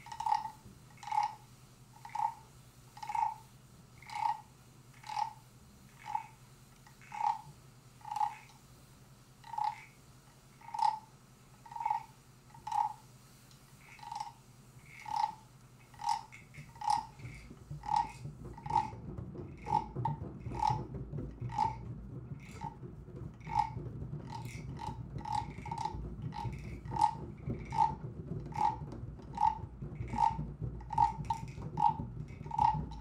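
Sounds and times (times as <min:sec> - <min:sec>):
faint low hum: 0:00.0 - 0:33.0
hand percussion knocks: 0:16.0 - 0:33.0.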